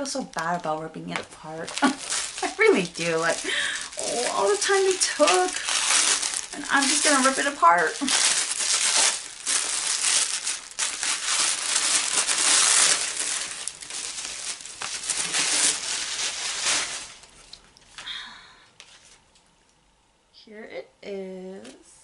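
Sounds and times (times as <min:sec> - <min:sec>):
paper rustling and ripping: 0:01.4 - 0:17.6.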